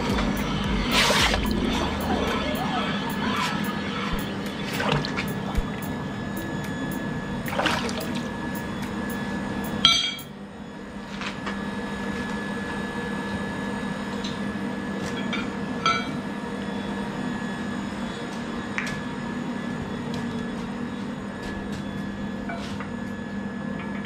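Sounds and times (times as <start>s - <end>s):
low machine hum: 0.0s - 24.0s
metal tools striking metal: 8.0s - 10.3s.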